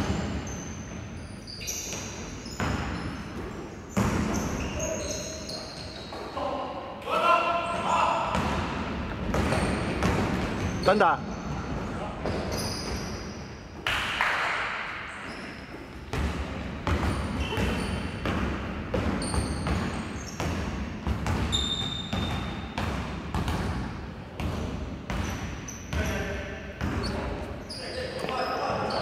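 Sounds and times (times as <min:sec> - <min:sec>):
sneaker squeaks: 0:00.0 - 0:06.6, 0:09.3 - 0:13.8, 0:15.0 - 0:23.7, 0:25.1 - 0:29.0
basketball bouncing on hardwood floor: 0:16.1 - 0:23.8.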